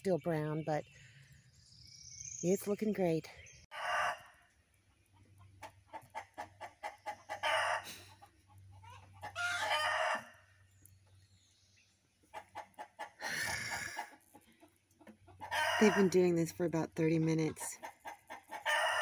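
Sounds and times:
chickens clucking: 3.0s - 11.2s, 12.0s - 19.0s
rooster crowing: 9.3s - 10.4s, 18.7s - 19.0s.

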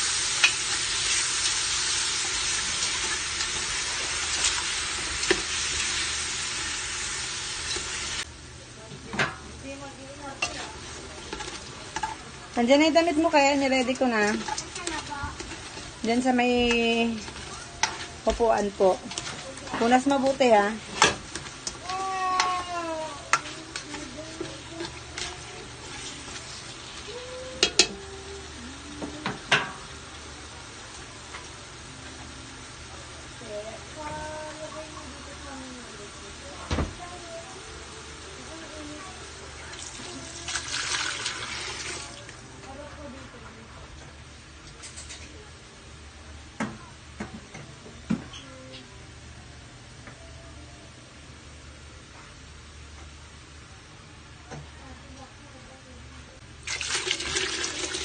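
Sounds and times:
chicken sizzling in oil: 0.0s - 8.3s, 10.1s - 42.4s, 56.6s - 58.0s
utensil scraping pot: 10.4s - 28.3s.

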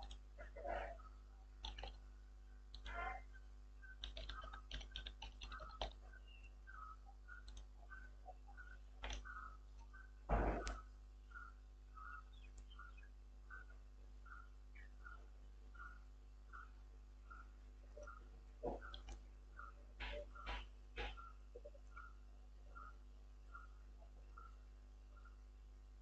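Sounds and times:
keyboard typing: 0.0s - 0.5s, 1.6s - 2.1s, 2.7s - 3.0s, 3.8s - 11.5s, 18.0s - 22.1s
mouse clicks: 1.6s - 2.0s, 4.0s - 6.0s, 6.7s - 10.0s, 10.6s - 11.5s, 18.8s - 22.1s
loud thump: 10.3s - 10.7s.

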